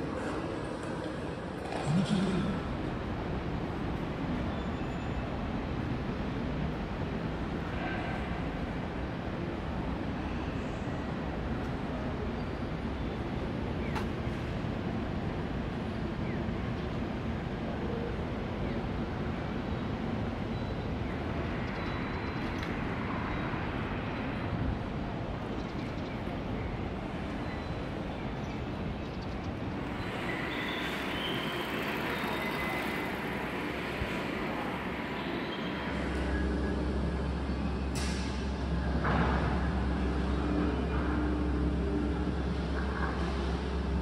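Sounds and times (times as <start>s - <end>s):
traffic rumble: 0.0s - 44.0s
shopping arcade hum: 29.8s - 37.8s.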